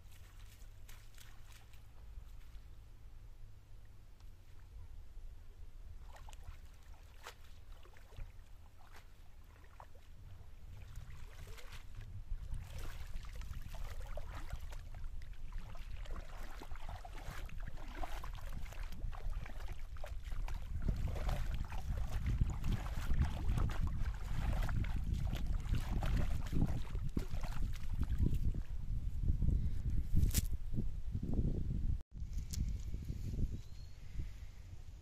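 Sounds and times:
water splashing and dripping: 0.0 - 2.6, 6.0 - 10.1, 10.7 - 28.6
wading steps in water: 0.0 - 2.7, 5.9 - 28.7
wind rumble on microphone: 4.4 - 35.0.

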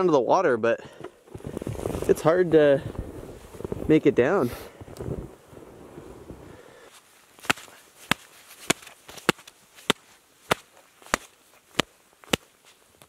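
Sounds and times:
leather mitts slapping together: 7.4 - 13.0.

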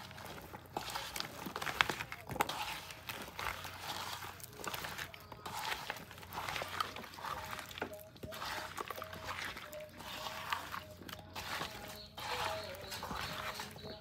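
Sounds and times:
wet squelching and sloshing batter: 0.0 - 14.0.

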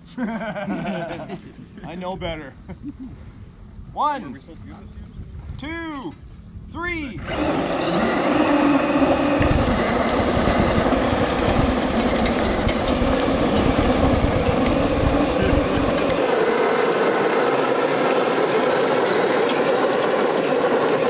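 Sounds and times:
toy car motors whining: 7.2 - 21.0
tires spinning in dirt: 7.3 - 21.0.

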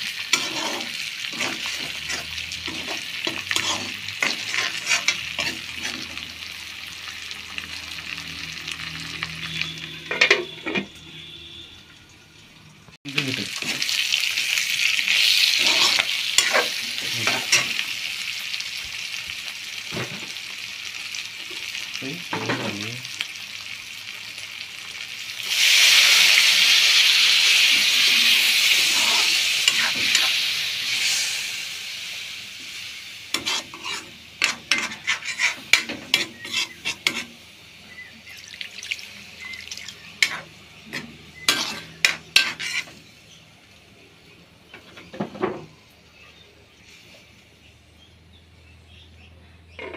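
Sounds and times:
meat sizzling in a pan: 0.0 - 10.7, 13.1 - 44.4
metal spatula scraping a pan: 0.1 - 6.4, 9.4 - 11.4, 15.1 - 17.9, 27.5 - 31.7, 33.3 - 37.4, 39.8 - 43.1.

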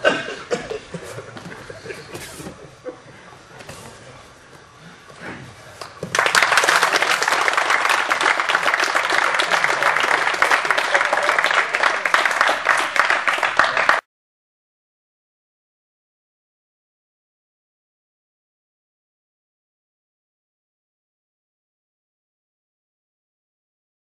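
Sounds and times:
audience applauding: 5.8 - 14.1.

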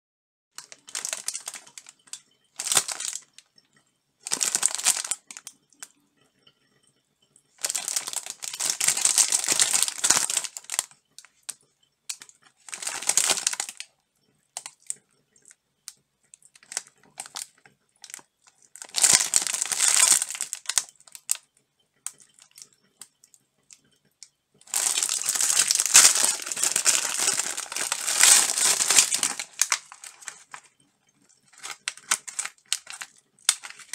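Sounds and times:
plastic wrapper tearing: 0.6 - 3.3, 4.2 - 5.5, 7.6 - 11.0, 12.1 - 13.9, 16.5 - 18.2, 18.8 - 21.4, 24.7 - 30.7, 31.5 - 33.9
plastic wrapper rustling: 0.6 - 3.4, 4.2 - 5.5, 7.6 - 11.5, 12.1 - 13.9, 16.5 - 21.4, 24.7 - 30.7, 31.5 - 33.9.

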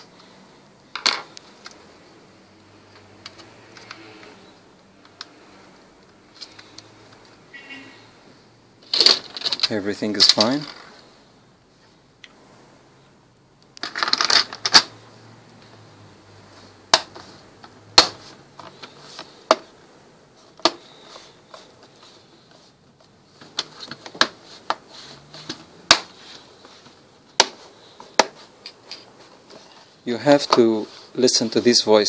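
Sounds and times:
plastic cover clattering: 8.8 - 11.0, 13.8 - 14.9.

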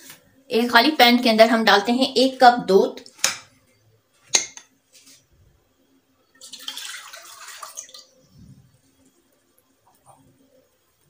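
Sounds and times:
milk pouring into a wok: 6.4 - 8.3.

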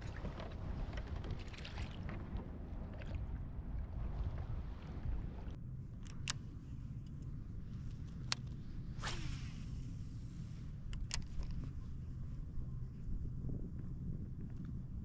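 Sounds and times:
low wind rumble: 0.0 - 15.0
fishing rod swish: 9.0 - 9.9.

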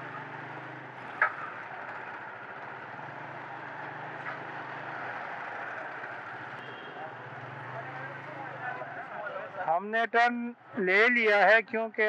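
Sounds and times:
motorcycle engine running: 0.0 - 8.8
street traffic noise: 0.0 - 12.0.

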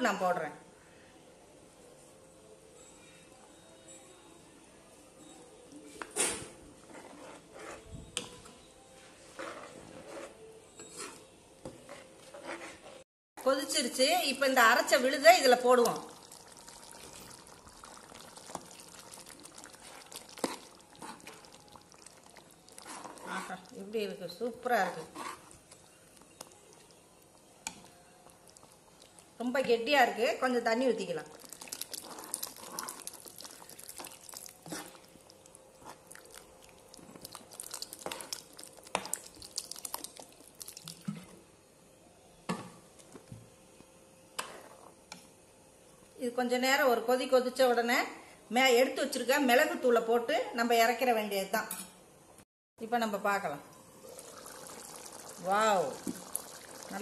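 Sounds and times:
spoon scraping pan: 6.8 - 7.9, 9.2 - 13.0, 18.4 - 23.8, 24.4 - 26.9, 31.3 - 35.2
curry bubbling in a pan: 14.8 - 29.6, 31.0 - 41.4, 53.9 - 57.0
gravy squelching: 15.8 - 23.9, 24.8 - 27.1, 31.2 - 41.3.

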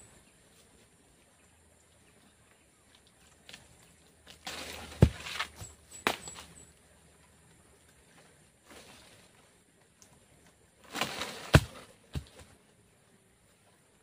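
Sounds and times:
rustling: 3.0 - 6.7, 7.7 - 12.6.

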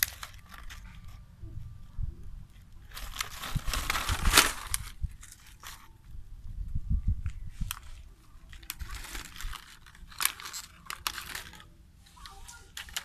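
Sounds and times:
plastic bottle crinkling: 0.0 - 1.2, 2.6 - 5.9, 7.3 - 11.7.

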